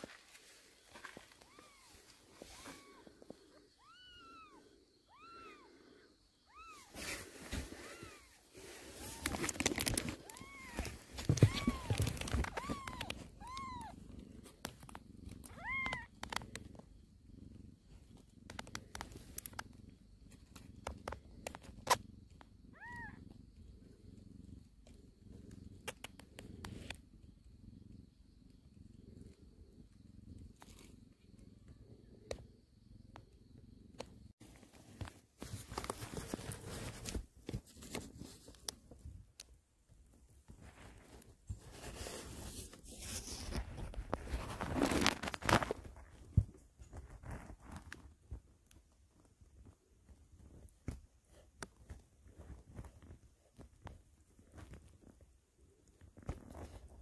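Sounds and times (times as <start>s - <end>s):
cat purring: 0.0s - 57.0s
kittens mewing: 7.6s - 14.0s, 15.4s - 16.4s.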